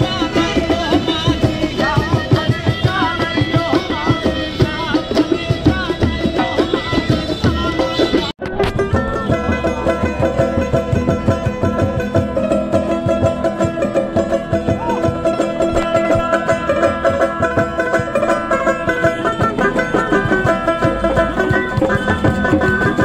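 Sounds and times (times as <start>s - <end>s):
banjo strummed quickly: 0.0s - 23.0s
steady drum beat: 0.0s - 23.0s.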